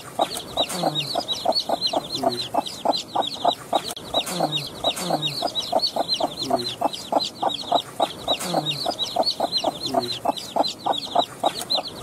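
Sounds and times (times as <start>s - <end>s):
chicks peeping: 0.0s - 12.0s
hen clucking: 0.0s - 12.0s.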